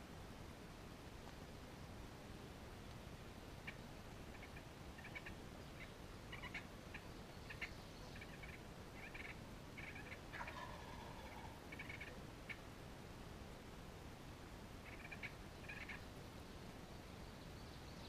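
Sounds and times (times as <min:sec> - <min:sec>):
turkey drawn-out call: 0:03.6 - 0:12.6, 0:14.8 - 0:16.0
turkeys clucking: 0:03.6 - 0:12.6, 0:14.8 - 0:16.0.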